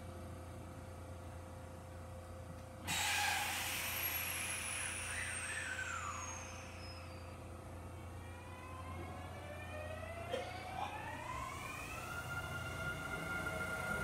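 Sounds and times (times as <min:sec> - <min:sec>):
train hum: 0:00.0 - 0:14.0
air brakes hissing: 0:02.8 - 0:07.5.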